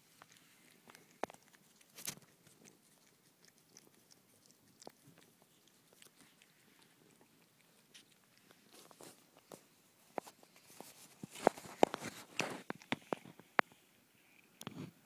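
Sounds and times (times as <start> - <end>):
pet licking wet clicks: 0.2 - 8.8.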